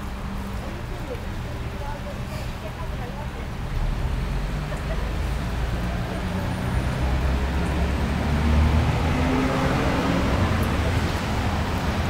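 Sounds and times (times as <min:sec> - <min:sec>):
low rumble of street traffic: 0:00.0 - 0:12.0
passing vehicle engine hum: 0:03.8 - 0:12.0.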